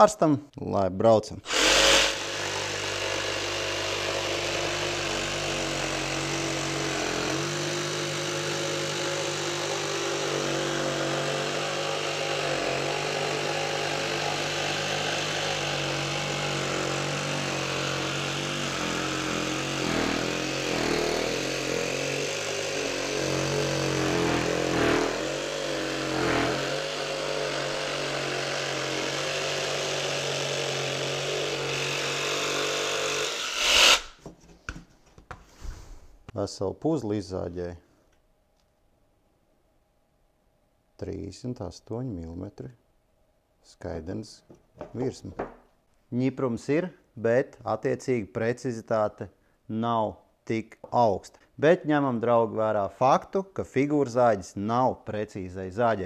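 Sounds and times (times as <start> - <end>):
jigsaw cutting chipboard: 1.5 - 34.2.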